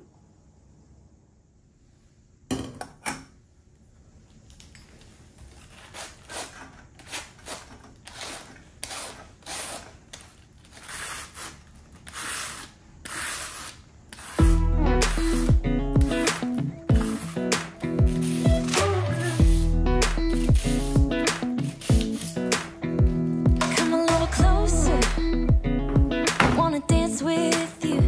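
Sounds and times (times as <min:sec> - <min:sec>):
cabbage shredded with hand slicer: 0:18.1 - 0:22.6.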